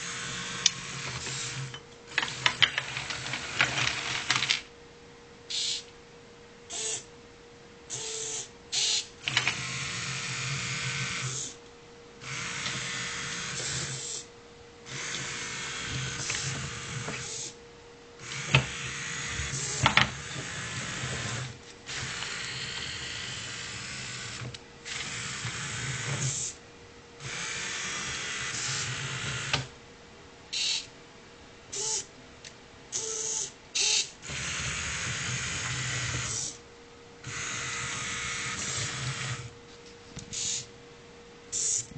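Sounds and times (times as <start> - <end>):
small motors whirring: 0.0 - 4.6, 6.7 - 7.1, 7.9 - 11.6, 12.2 - 14.3, 14.9 - 17.6, 18.2 - 26.6, 27.2 - 29.7, 30.6 - 30.9, 31.7 - 32.1, 32.9 - 36.6, 37.2 - 39.5, 40.3 - 40.7, 41.5 - 41.9
faint steady hum: 0.0 - 41.9.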